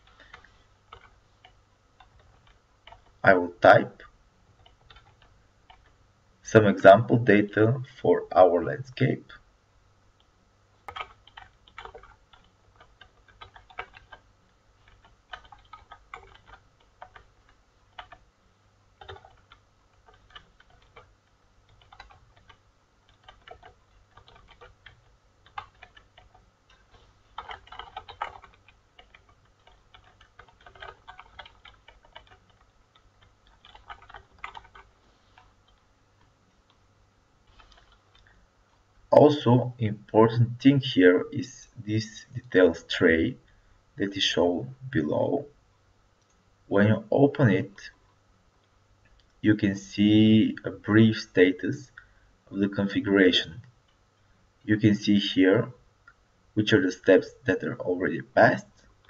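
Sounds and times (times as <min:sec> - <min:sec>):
keyboard typing: 0:00.0 - 0:06.0, 0:10.2 - 0:18.3, 0:19.0 - 0:36.8, 0:37.5 - 0:38.3.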